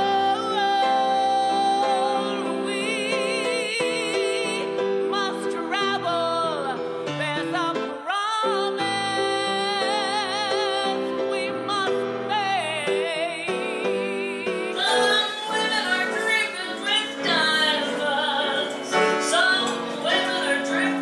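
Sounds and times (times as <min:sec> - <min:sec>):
woman singing with vibrato: 0:00.0 - 0:21.0
instrumental accompaniment: 0:09.5 - 0:21.0.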